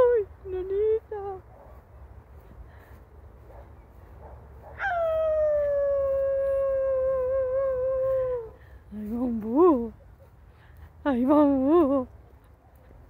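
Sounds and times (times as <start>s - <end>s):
person imitating wolf howl: 4.8s - 8.6s.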